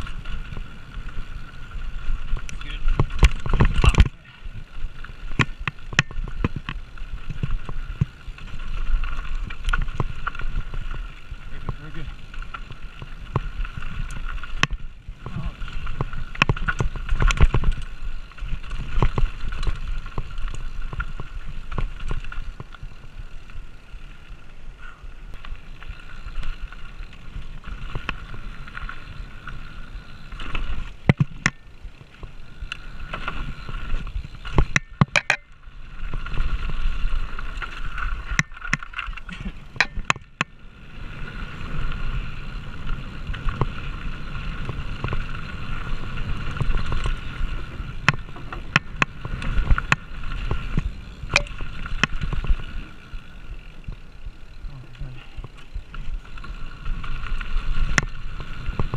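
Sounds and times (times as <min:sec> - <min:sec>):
tyres rolling over dirt and rock: 0:00.0 - 0:24.7, 0:25.3 - 0:58.9
bike rattling over rough ground: 0:00.0 - 0:58.9
sharp clicks and knocks from impacts: 0:02.3 - 0:04.2, 0:05.3 - 0:08.2, 0:30.4 - 0:33.4, 0:34.0 - 0:36.4, 0:37.6 - 0:40.5, 0:48.0 - 0:52.6.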